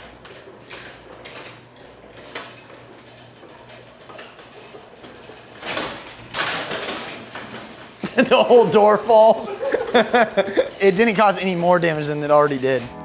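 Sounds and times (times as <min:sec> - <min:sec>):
garage door panels rattling: 0:00.0 - 0:10.3
garage door opener humming: 0:00.0 - 0:13.0.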